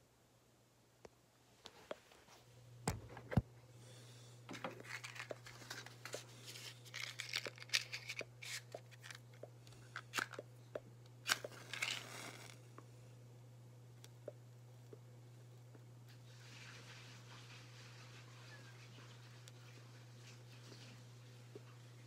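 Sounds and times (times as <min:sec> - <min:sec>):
steady low hum: 0:00.0 - 0:22.0
paper crinkling and tearing: 0:04.6 - 0:09.3, 0:11.2 - 0:12.6.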